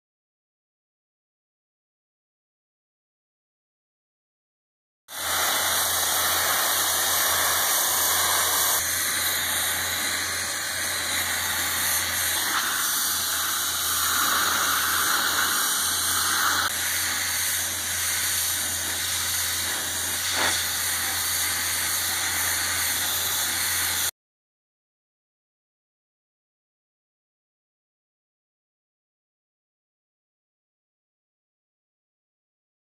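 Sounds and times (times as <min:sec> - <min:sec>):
pressure washer spraying: 0:05.1 - 0:24.1.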